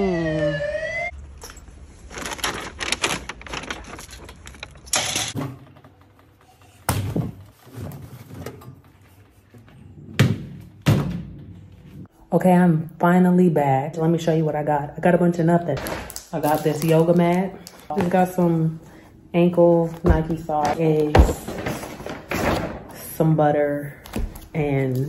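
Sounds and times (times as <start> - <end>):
siren wailing: 0.0 - 1.2.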